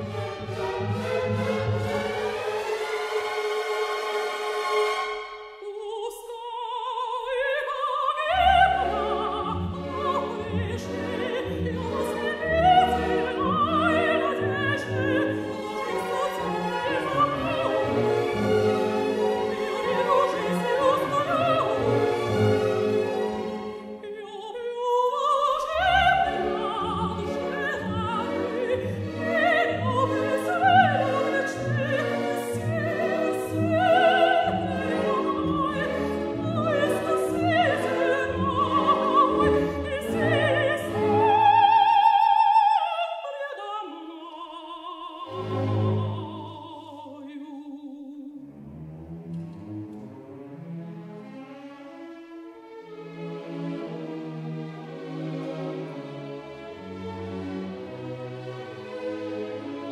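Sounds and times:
symphony orchestra: 0.0s - 59.9s
soprano singing: 5.0s - 51.4s.

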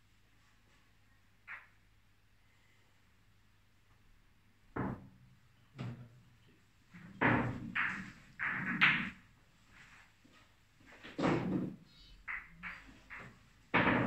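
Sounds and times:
billiard balls knocking: 7.0s - 9.3s, 11.0s - 14.0s.

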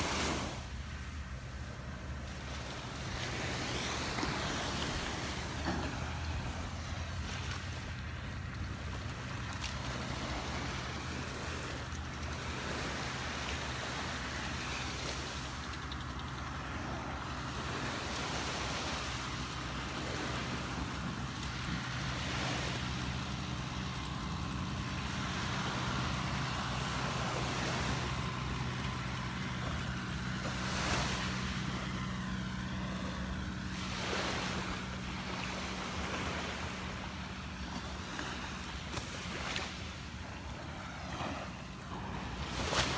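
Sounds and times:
low engine hum: 0.0s - 42.9s
surf breaking on a beach: 0.0s - 42.9s.

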